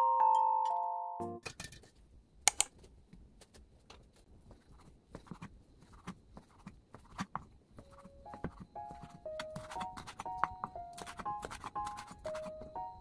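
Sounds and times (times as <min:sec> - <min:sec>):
sharp clicks: 0:02.5 - 0:02.7.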